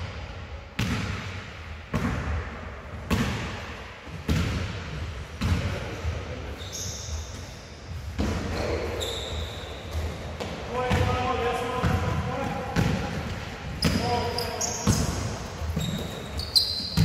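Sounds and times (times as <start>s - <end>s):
basketball bouncing on hall floor: 0.8s - 6.2s, 8.2s - 17.0s
high-pitched shoe squeaks: 6.6s - 7.4s, 8.6s - 9.9s, 13.8s - 15.1s, 15.8s - 17.0s.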